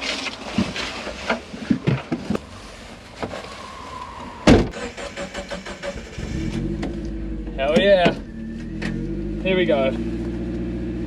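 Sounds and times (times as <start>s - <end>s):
car engine idling: 4.8s - 11.0s.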